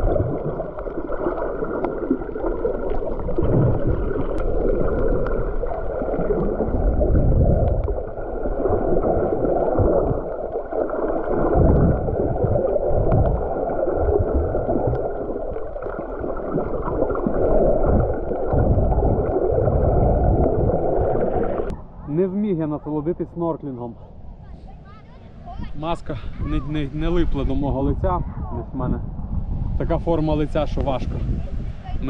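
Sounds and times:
muffled sea water sloshing: 0:00.0 - 0:22.0
low water surges: 0:00.0 - 0:32.0.

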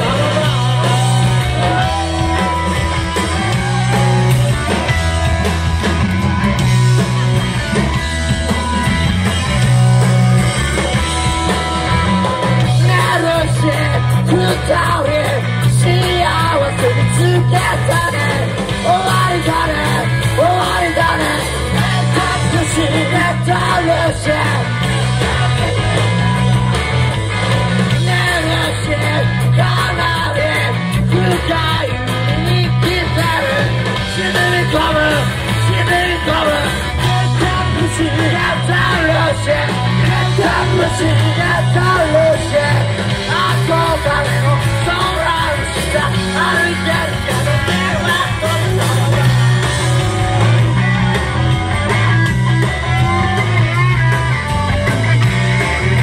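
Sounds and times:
live rock band: 0:00.0 - 0:56.0.

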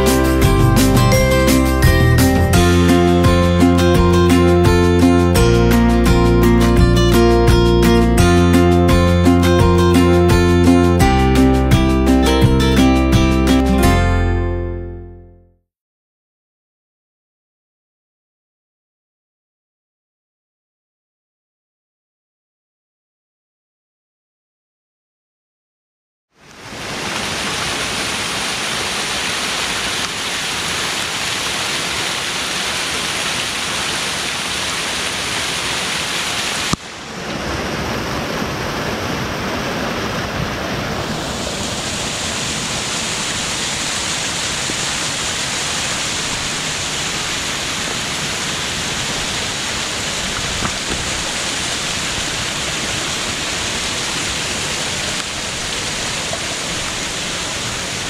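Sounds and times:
rain: 0:26.4 - 0:58.0
waterfall rushing over rocks: 0:26.4 - 0:58.0.

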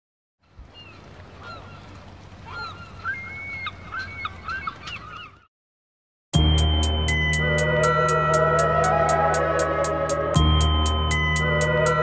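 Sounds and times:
flock of birds calling: 0:02.5 - 0:05.5, 0:07.8 - 0:10.4.

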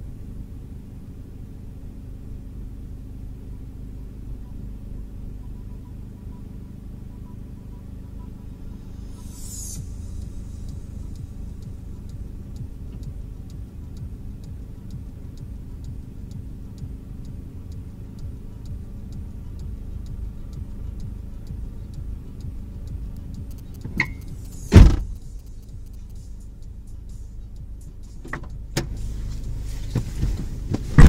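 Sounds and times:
car engine idling: 0:00.0 - 0:31.0
light regular ticking: 0:04.0 - 0:31.0
sharp click: 0:23.1 - 0:26.3
car bonnet slammed shut: 0:24.7 - 0:25.2.

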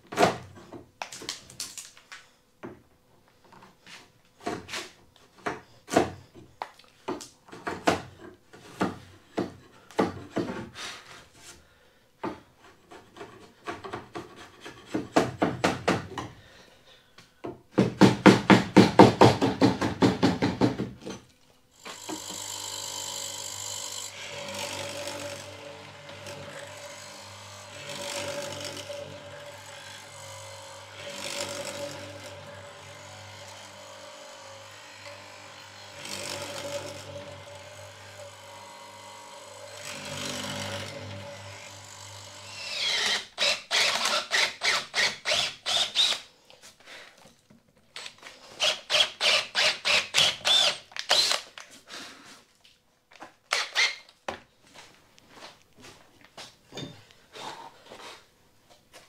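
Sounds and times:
chisel scraping wood: 0:12.6 - 0:15.3
mortiser motor running: 0:21.9 - 0:43.0.

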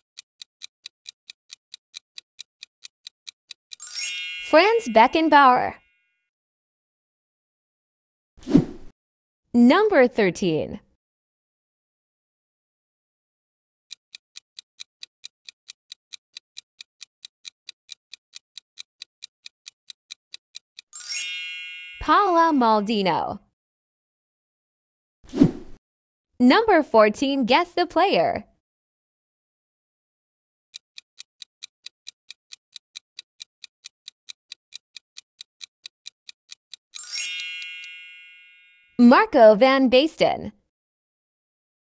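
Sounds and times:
fast clock-like ticking: 0:00.0 - 0:03.8, 0:13.9 - 0:21.0, 0:30.7 - 0:37.0
countdown timer ticking: 0:31.0 - 0:39.2.

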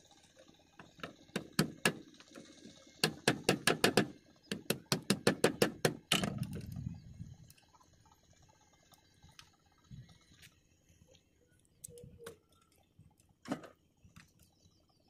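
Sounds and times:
plastic pipe knocking snail shells: 0:00.8 - 0:02.1, 0:03.0 - 0:06.7
low rumble: 0:06.4 - 0:07.5.

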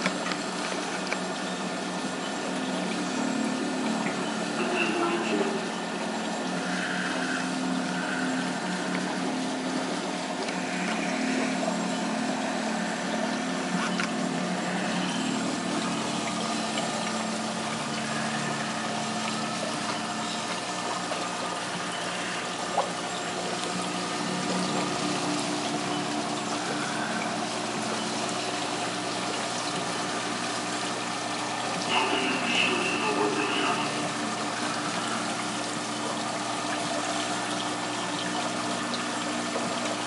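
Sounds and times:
pump humming: 0:00.0 - 0:40.0
water trickling and splashing: 0:00.0 - 0:40.0.

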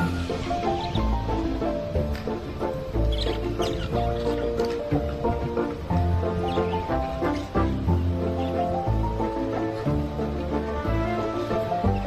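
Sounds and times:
held music notes: 0:00.0 - 0:12.0.

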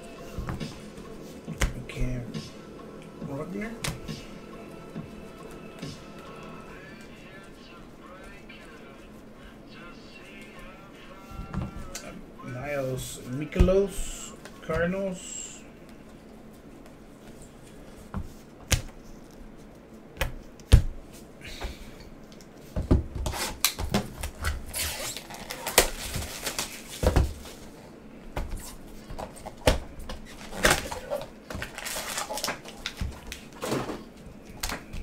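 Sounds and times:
packaging rustling and scraping: 0:23.2 - 0:27.8, 0:30.2 - 0:35.0.

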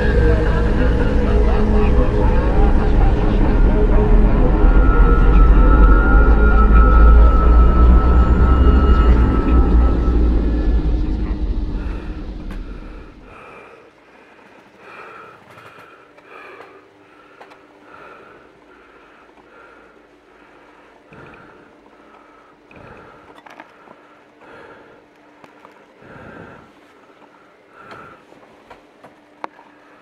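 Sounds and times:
low rumble: 0:00.0 - 0:13.4
faint steady hum: 0:00.0 - 0:30.0
person breathing hard: 0:11.4 - 0:28.4.

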